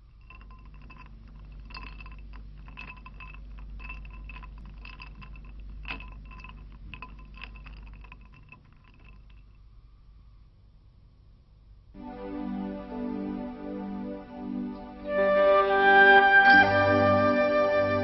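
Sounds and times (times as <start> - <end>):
small chimes tinkling: 0.0 - 9.7.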